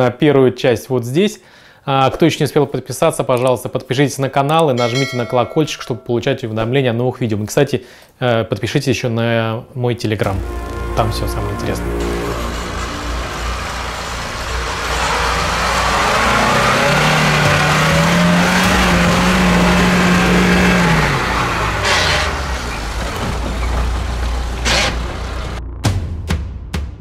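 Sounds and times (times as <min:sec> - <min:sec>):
engine revving under load: 0:10.2 - 0:25.6
loud rushing noise: 0:10.3 - 0:25.6.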